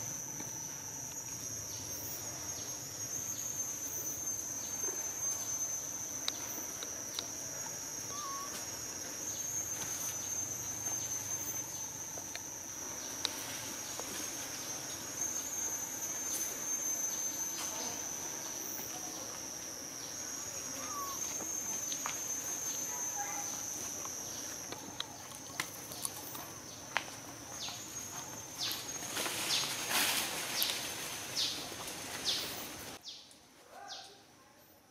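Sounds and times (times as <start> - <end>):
high-pitched insect drone: 0.0 - 33.2
small chirps: 0.0 - 34.2.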